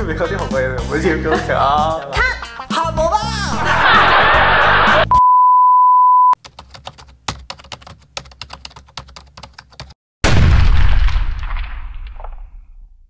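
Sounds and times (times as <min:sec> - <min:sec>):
loud noisy sound effect: 0:03.6 - 0:05.1
steady high beep: 0:05.1 - 0:06.4.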